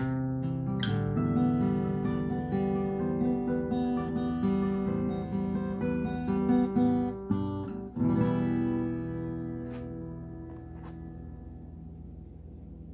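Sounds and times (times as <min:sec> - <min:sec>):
acoustic guitar playing: 0:00.0 - 0:12.9.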